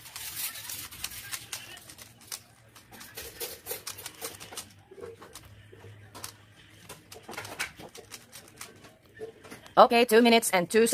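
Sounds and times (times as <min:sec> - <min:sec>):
rubik's cube clicking: 0:00.0 - 0:04.7, 0:06.2 - 0:08.8.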